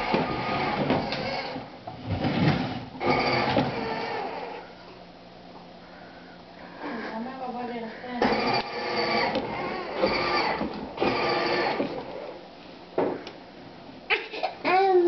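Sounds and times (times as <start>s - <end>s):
plastic wheels rolling on wood: 0.0s - 4.6s, 8.2s - 12.4s
small electric motor whirring: 3.0s - 4.6s, 8.2s - 12.2s.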